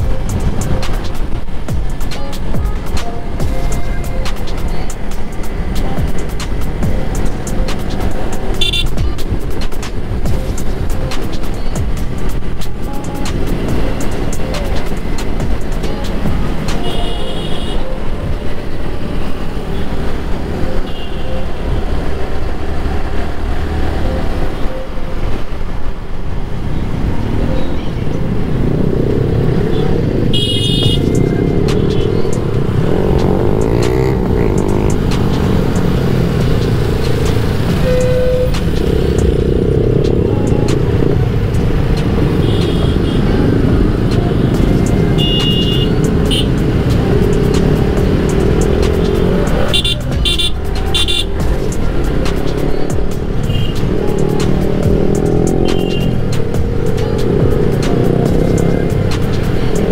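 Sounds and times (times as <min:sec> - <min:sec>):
motorcycle engine: 0:00.0 - 0:24.8, 0:25.4 - 0:59.9
short horn beeps: 0:16.8 - 0:18.0, 0:37.8 - 0:38.6.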